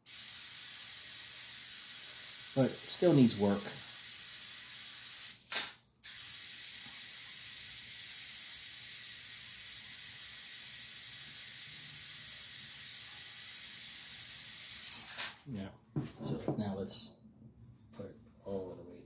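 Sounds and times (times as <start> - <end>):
high-voltage hissing: 0.0 - 15.4
sharp electric crack: 5.3 - 6.3.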